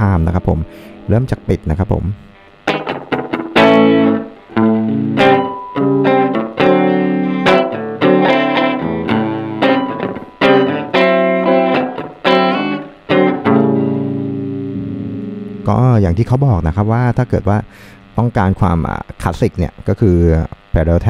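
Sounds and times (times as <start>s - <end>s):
electric guitar with short delay: 2.4s - 15.7s.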